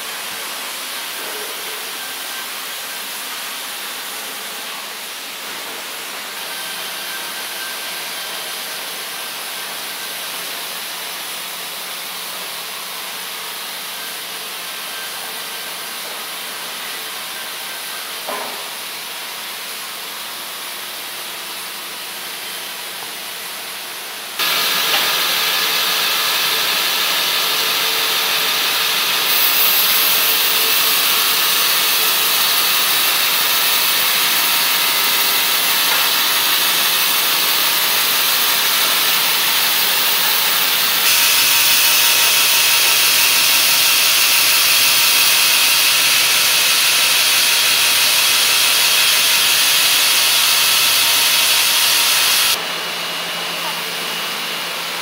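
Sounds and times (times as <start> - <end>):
band saw cutting through log: 24.4 - 52.6.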